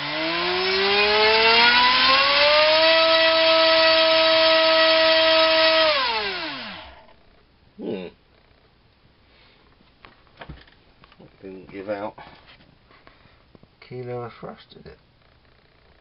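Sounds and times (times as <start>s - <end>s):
electric motor propeller whine: 0.0s - 7.2s.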